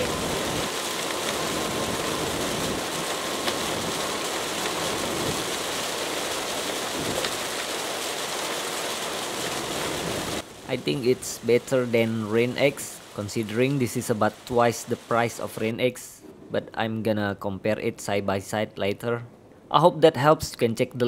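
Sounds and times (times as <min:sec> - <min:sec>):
rain hitting windshield: 0:00.0 - 0:15.5
tyres on wet road: 0:00.0 - 0:15.8.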